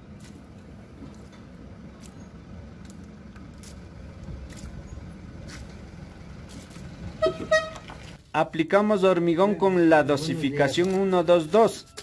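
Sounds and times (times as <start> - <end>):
steady low rumble: 0.0 - 8.5.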